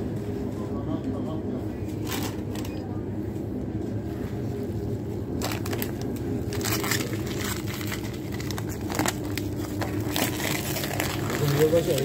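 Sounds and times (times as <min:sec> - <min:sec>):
steady low hum: 0:00.0 - 0:12.0
plastic bags crinkling: 0:05.3 - 0:12.0.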